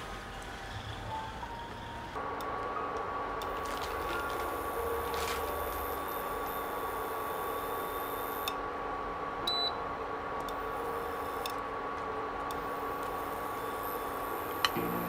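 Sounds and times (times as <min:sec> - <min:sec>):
induction cooktop whine: 0:00.0 - 0:15.0.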